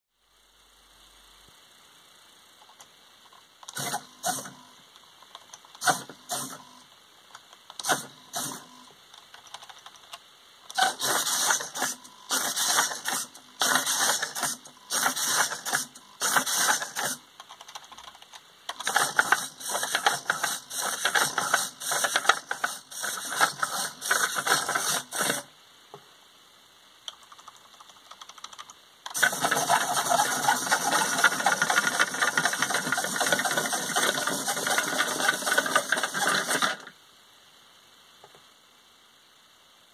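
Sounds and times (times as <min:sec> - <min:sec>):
servo motors whirring: 0:03.7 - 0:04.6, 0:07.8 - 0:08.8, 0:10.8 - 0:17.2, 0:18.8 - 0:25.4.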